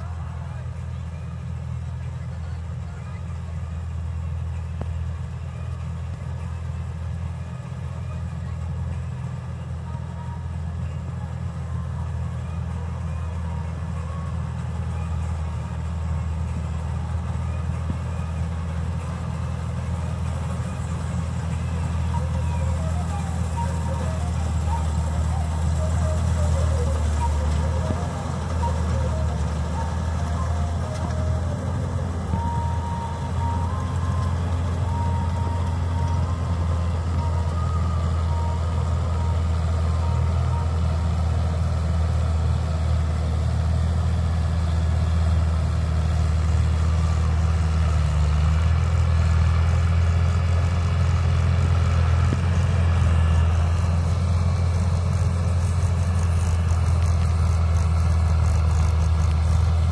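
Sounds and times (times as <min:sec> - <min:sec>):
combine harvester engine droning: 0:00.0 - 0:59.9
tractors working: 0:00.0 - 0:59.9.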